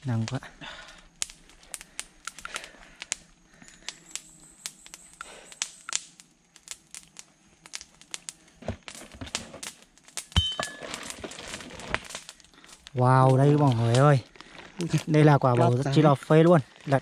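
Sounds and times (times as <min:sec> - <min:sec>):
sharp clicks and crackles: 0:00.1 - 0:15.8
stiff material crinkling: 0:10.7 - 0:15.9.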